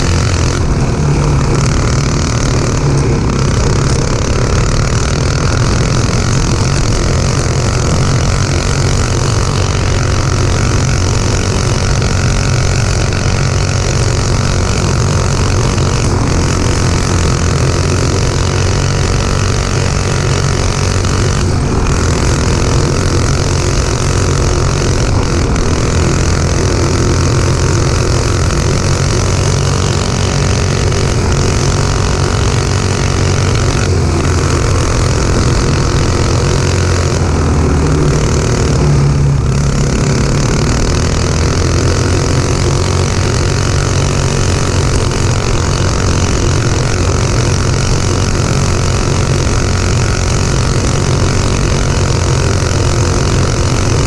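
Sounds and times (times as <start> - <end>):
go-kart engine running: 0.0 - 54.0.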